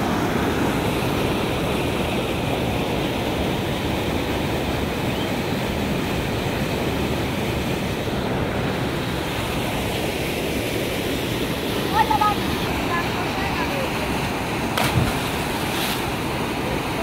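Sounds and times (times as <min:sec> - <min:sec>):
floodwater rushing: 0:08.0 - 0:17.0.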